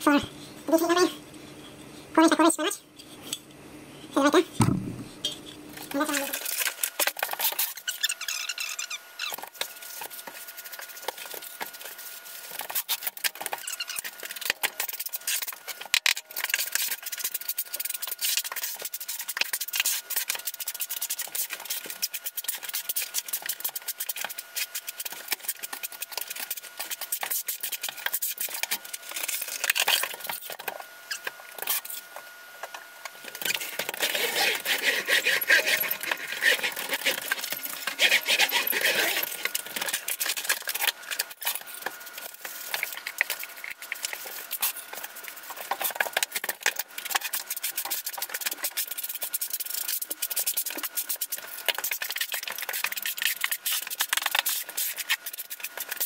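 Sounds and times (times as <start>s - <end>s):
paddle mixer churning: 33.3s - 44.3s.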